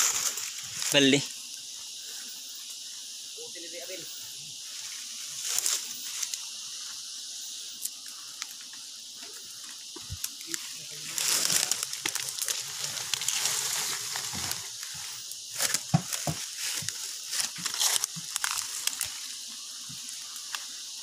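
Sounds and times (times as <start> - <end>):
dry leaves rustling and crunching: 0.0 - 1.2, 5.2 - 6.4, 10.0 - 19.5
twigs snapping: 10.0 - 15.0, 15.6 - 19.3.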